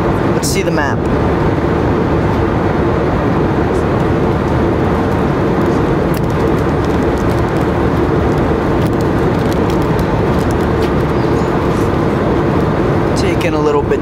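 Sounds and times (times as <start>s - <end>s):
airplane cabin roar: 0.0s - 14.0s
low hum: 0.0s - 14.0s.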